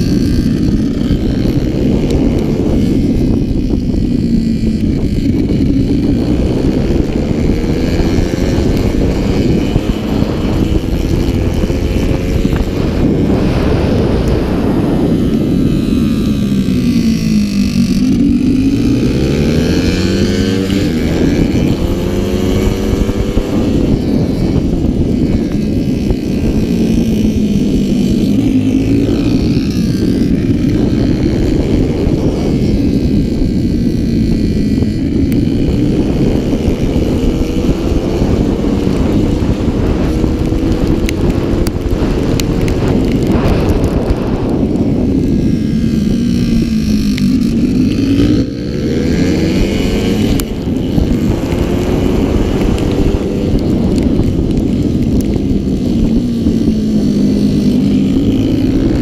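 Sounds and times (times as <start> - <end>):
motorcycle engine revving: 0.0 - 59.0
wind and spray rushing: 0.0 - 59.0.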